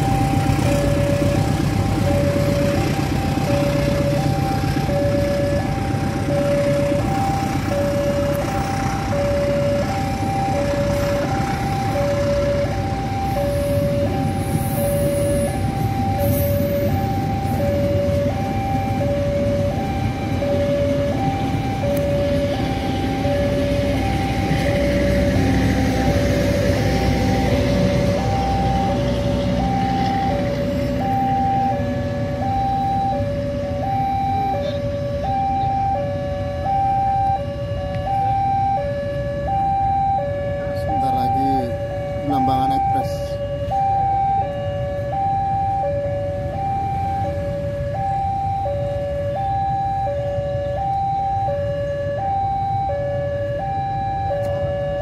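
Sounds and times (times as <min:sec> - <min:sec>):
train rumbling on rails: 0:00.0 - 0:32.4
level crossing alarm two tones: 0:03.4 - 0:55.0.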